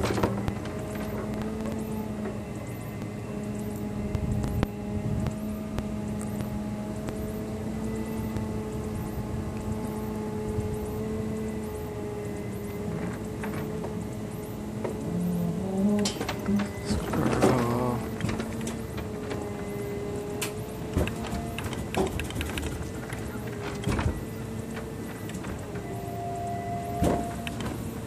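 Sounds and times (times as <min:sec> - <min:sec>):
truck engine droning: 0:00.0 - 0:28.0.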